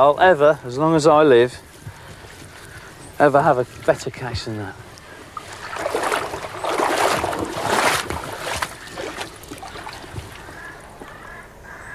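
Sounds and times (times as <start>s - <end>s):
water splashing in shallows: 4.8s - 11.4s.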